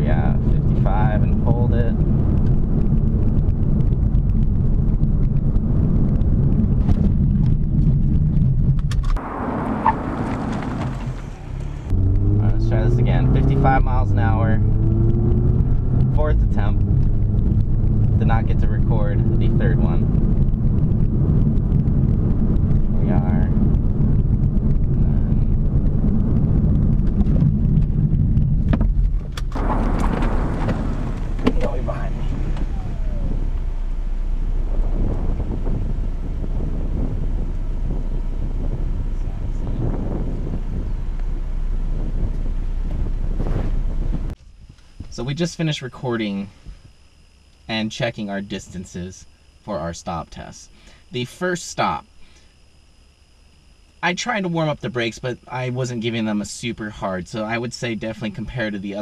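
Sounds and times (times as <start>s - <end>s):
wind noise on microphone: 0.0s - 47.4s
car road and engine rumble: 0.0s - 59.0s.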